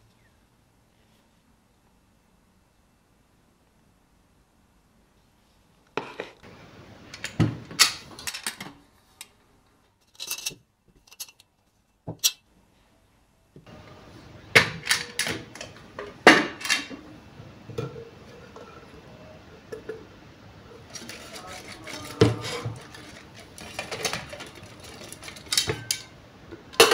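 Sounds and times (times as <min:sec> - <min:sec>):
metal pans clanking and rattling: 0:14.6 - 0:17.1, 0:20.7 - 0:26.9.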